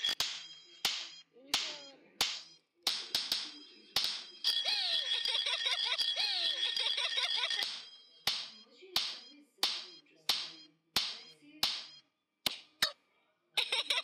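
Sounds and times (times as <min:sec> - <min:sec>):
hand slapping ball: 0:00.1 - 0:04.3, 0:07.6 - 0:12.9.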